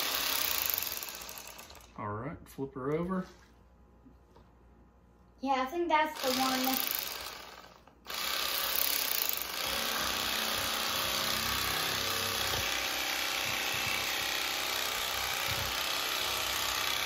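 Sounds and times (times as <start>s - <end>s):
electric fillet knife buzzing: 0.0s - 1.9s, 6.2s - 17.0s.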